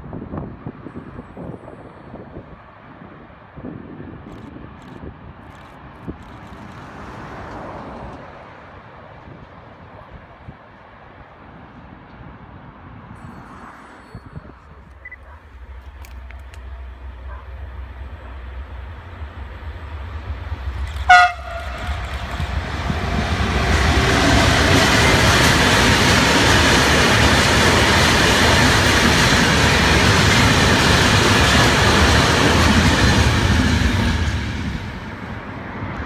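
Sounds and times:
freight train passing on rails: 0:00.0 - 0:36.0
train horn toot: 0:21.0 - 0:22.2.

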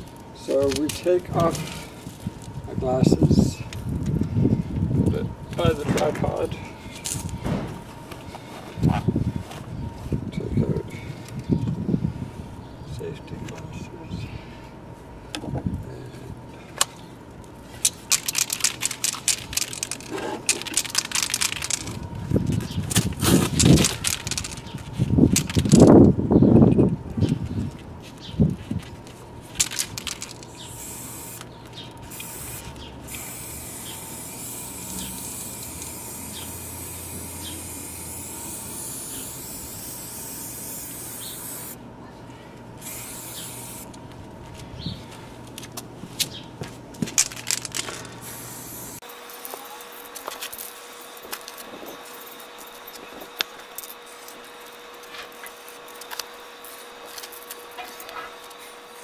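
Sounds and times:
spray-paint can hissing: 0:32.1 - 0:41.8, 0:42.8 - 0:43.8, 0:48.2 - 0:49.0.

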